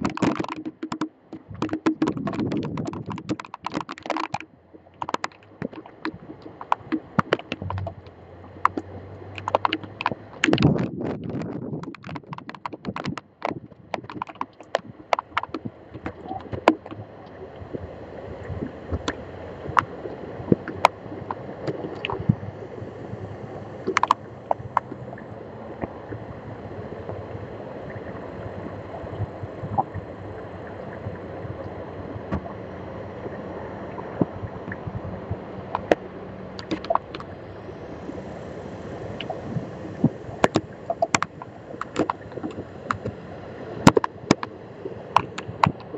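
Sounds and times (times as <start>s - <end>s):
rushing wind and rain: 0.0s - 4.4s, 5.0s - 45.9s
raindrops ticking on camera: 0.0s - 22.5s, 23.8s - 26.3s, 34.1s - 37.4s, 39.2s - 43.2s, 43.8s - 45.9s.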